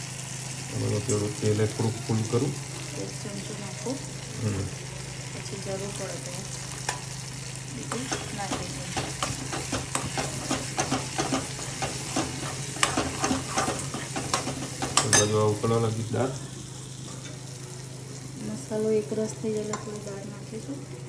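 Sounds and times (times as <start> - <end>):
frying sizzle: 0.0 - 21.0
ladle scraping a steel pan: 8.0 - 15.4.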